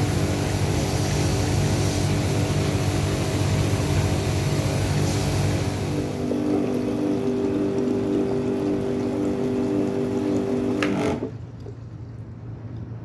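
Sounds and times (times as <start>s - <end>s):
water hissing through hose: 0.0s - 7.2s
engine-driven pump running: 0.0s - 12.8s.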